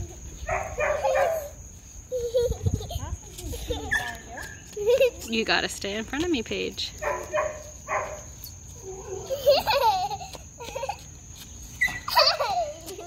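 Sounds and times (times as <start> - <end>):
children laughing and calling out: 0.0 - 5.4, 8.4 - 13.0.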